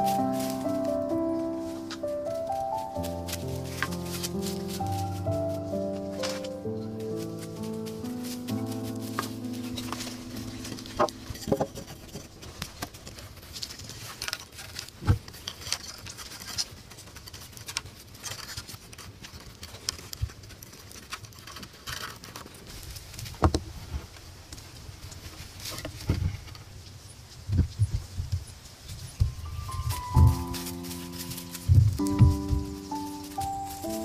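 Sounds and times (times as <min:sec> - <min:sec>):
clicks scrapes and rustles: 0:01.8 - 0:27.8, 0:29.7 - 0:34.0
wooden knocks: 0:11.0 - 0:12.3.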